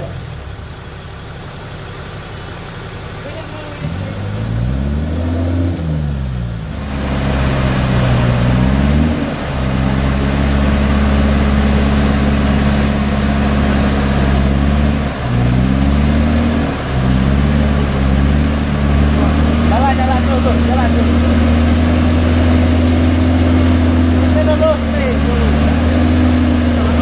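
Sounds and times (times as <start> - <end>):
off-road engine revving under load: 0.0 - 0.6, 3.2 - 27.0.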